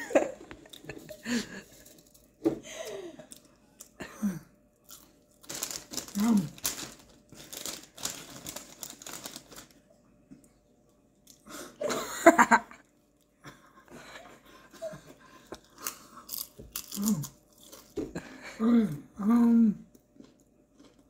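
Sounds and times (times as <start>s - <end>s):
potato chip crunching: 4.8s - 9.8s, 15.6s - 18.0s
plastic chip bag crinkling: 4.9s - 9.8s.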